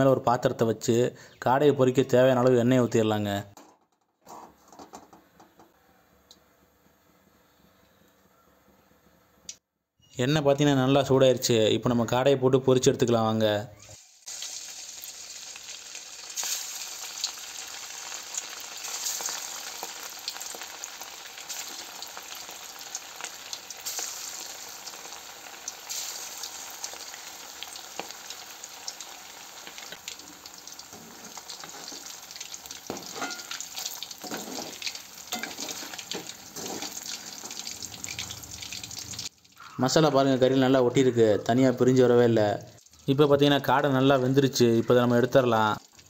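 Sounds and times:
food deep-frying in oil: 0:14.0 - 0:39.8, 0:42.4 - 0:46.0
metal spoon scraping a pan: 0:30.9 - 0:32.2, 0:32.9 - 0:37.6.

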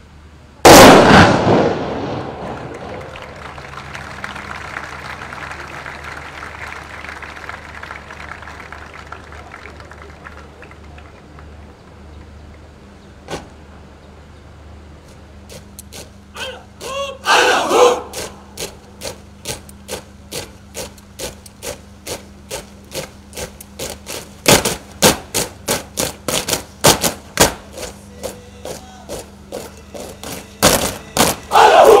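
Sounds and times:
person shouting commands: 0:16.4 - 0:18.3, 0:28.0 - 0:32.0
boots marching on pavement: 0:18.1 - 0:32.0.

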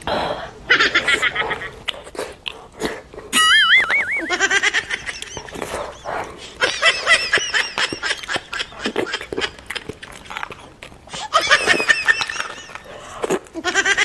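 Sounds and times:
high-pitched giggling: 0:00.7 - 0:02.0, 0:03.3 - 0:14.0
lip smacks and wet chewing: 0:01.2 - 0:04.2, 0:05.1 - 0:13.7.

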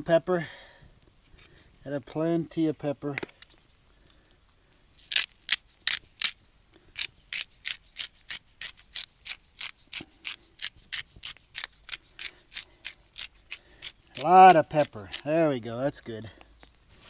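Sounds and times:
pepper grinder clicking: 0:07.0 - 0:15.3.

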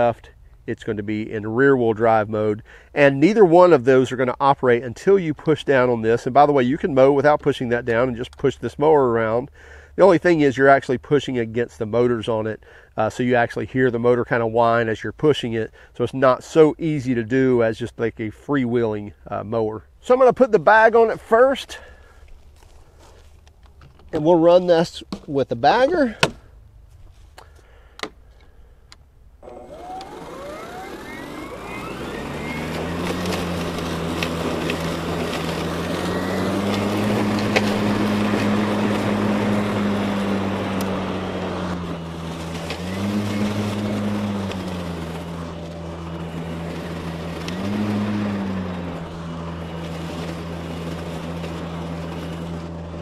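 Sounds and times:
electric lawn mower cutting grass: 0:29.4 - 0:53.0.

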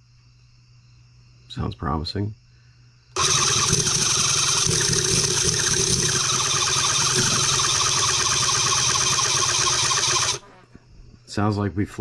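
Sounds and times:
electric starter cranking engine: 0:03.2 - 0:10.5.

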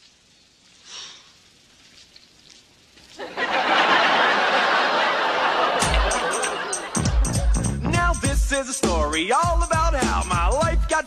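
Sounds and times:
studio audience laughing: 0:03.2 - 0:07.9.

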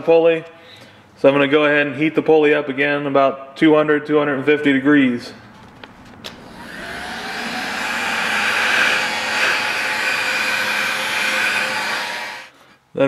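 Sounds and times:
heat gun fan blowing: 0:06.2 - 0:12.6.

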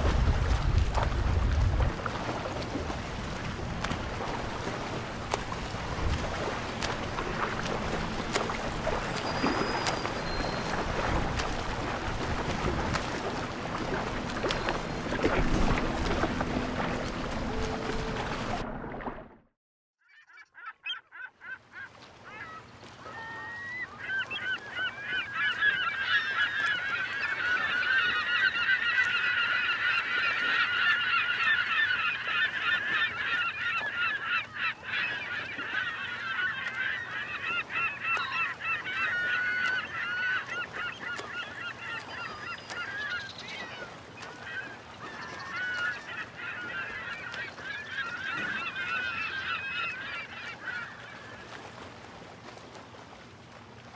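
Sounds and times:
flock of birds calling: 0:20.6 - 0:51.6.

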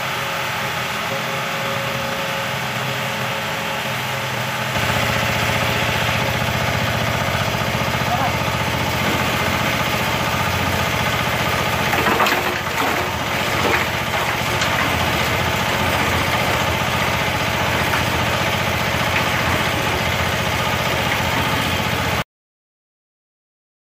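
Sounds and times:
cement mixer engine running: 0:00.0 - 0:22.2
wet concrete and gravel clattering: 0:08.4 - 0:22.0.

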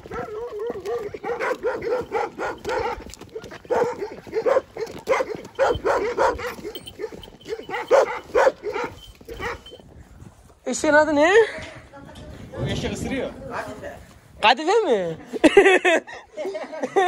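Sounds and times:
dogs barking: 0:00.0 - 0:09.8.

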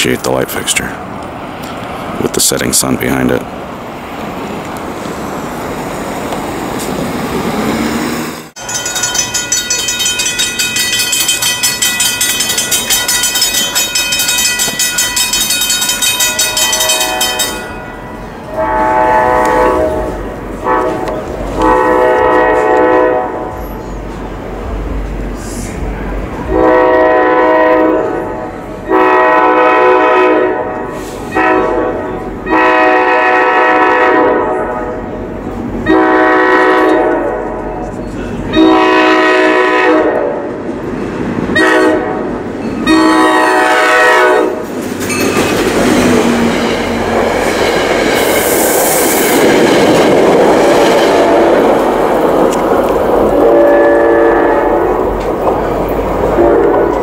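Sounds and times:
train rumble and wheel noise: 0:00.0 - 0:57.0
train horn: 0:16.6 - 0:23.6, 0:26.5 - 0:35.0, 0:35.8 - 0:37.6, 0:38.5 - 0:40.5, 0:41.5 - 0:44.7, 0:50.9 - 0:51.7, 0:53.4 - 0:55.0, 0:56.4 - 0:57.0.

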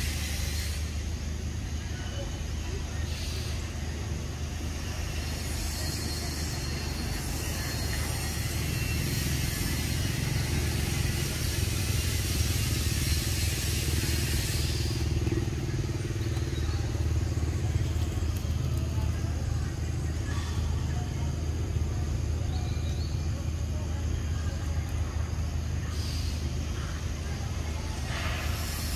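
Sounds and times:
high hiss: 0:00.0 - 0:22.2, 0:24.1 - 0:28.9
engine idling rumble: 0:00.0 - 0:28.9.

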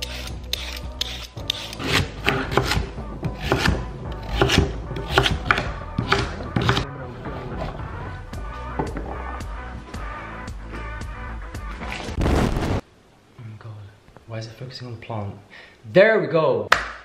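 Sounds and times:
knife chopping on wooden board: 0:01.8 - 0:06.8.

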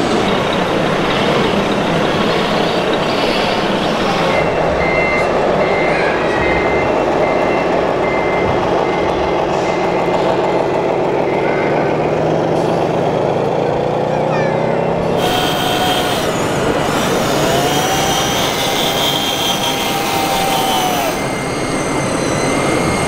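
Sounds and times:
steady background din: 0:00.0 - 0:23.0
high reversing beeps: 0:00.3 - 0:12.2, 0:18.4 - 0:23.0.

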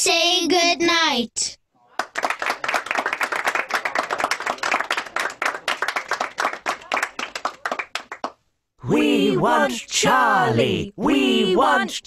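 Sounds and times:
audience applauding: 0:01.9 - 0:08.4.

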